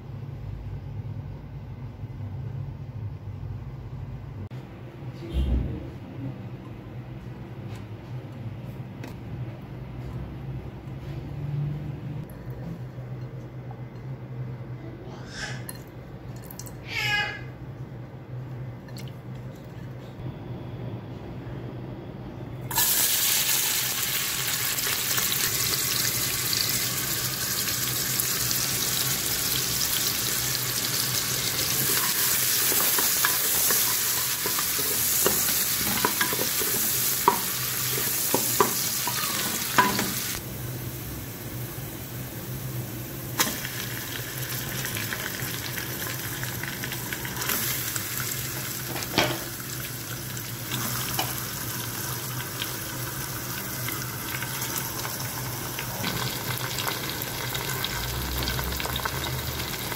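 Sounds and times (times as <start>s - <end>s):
onions sizzling in hot oil: 22.7s - 59.9s.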